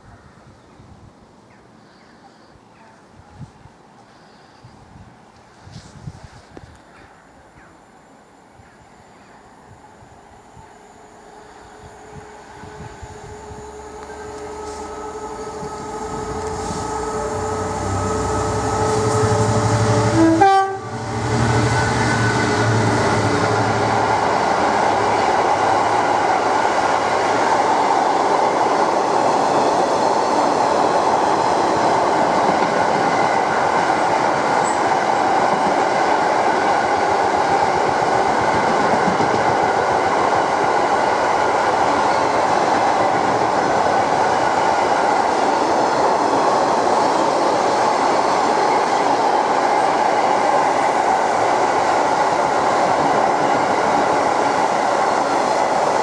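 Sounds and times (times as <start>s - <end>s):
train passing at speed: 9.1s - 56.0s
wheels rattling on rail: 12.8s - 56.0s.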